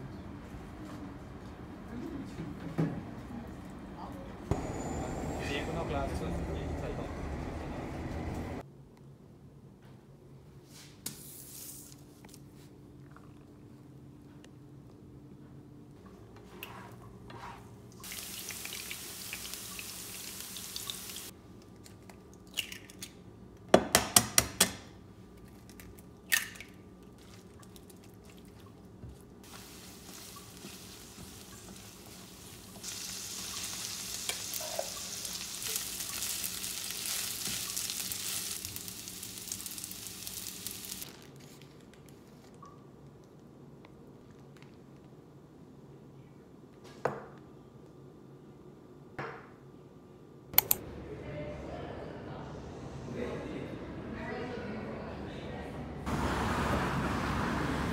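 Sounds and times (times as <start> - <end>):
oil sizzling in a pan: 18.0 - 21.4, 29.4 - 41.3
spatula stirring food: 29.5 - 36.0.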